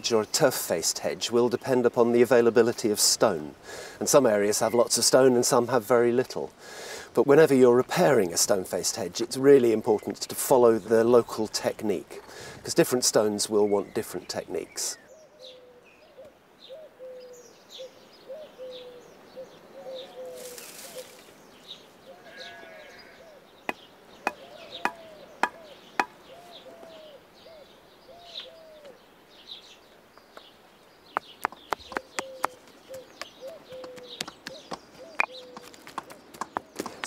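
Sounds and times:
pigeon cooing: 0:15.1 - 0:21.2, 0:24.3 - 0:29.0, 0:31.9 - 0:35.9.

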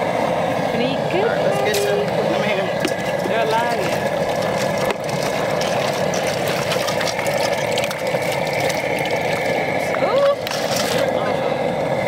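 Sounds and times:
propane burner rushing: 0:00.0 - 0:12.0
faint water splashing: 0:02.7 - 0:11.1.

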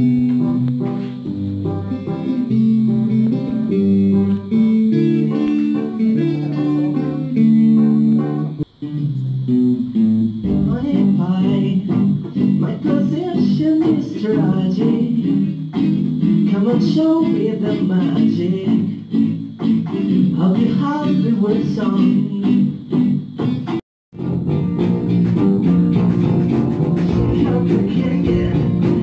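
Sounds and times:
electric guitars: 0:00.0 - 0:29.0
live rock band playing: 0:10.4 - 0:14.0, 0:23.4 - 0:29.0.

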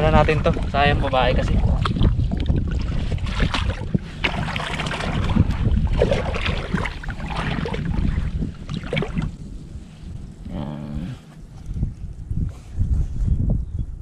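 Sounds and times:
muddy water splashing: 0:00.0 - 0:09.6
wind buffeting microphone: 0:00.0 - 0:14.0.

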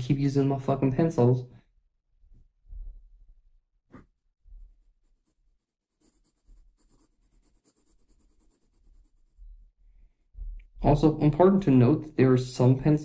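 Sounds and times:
pencil scratching on paper: 0:03.9 - 0:10.4.

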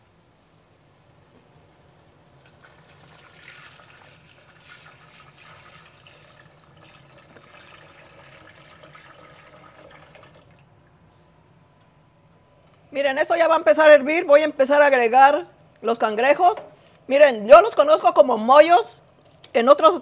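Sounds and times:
water pouring into metal pot: 0:02.4 - 0:10.8.

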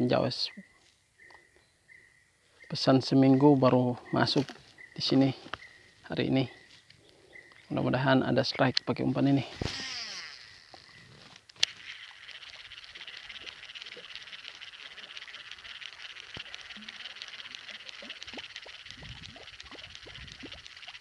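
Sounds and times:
insect chorus chirring: 0:00.0 - 0:21.0
soft ticks: 0:12.5 - 0:21.0.

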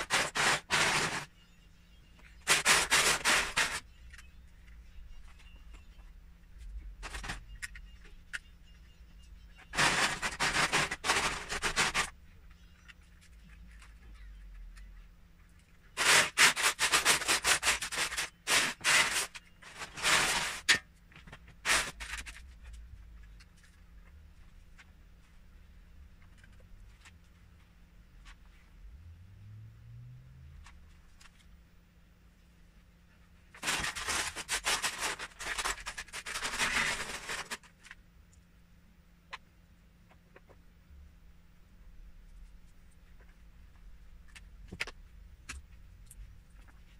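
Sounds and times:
plastic bricks rattling in tub: 0:09.7 - 0:12.1.

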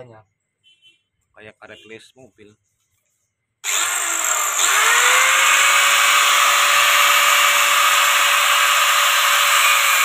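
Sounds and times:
angle grinder motor whine: 0:03.6 - 0:10.0.

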